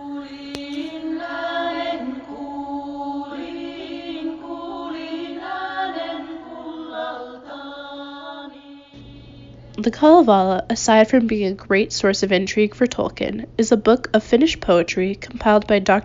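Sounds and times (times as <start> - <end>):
chanted vocal melody: 0.0 - 9.7
steady held drone: 0.0 - 12.3.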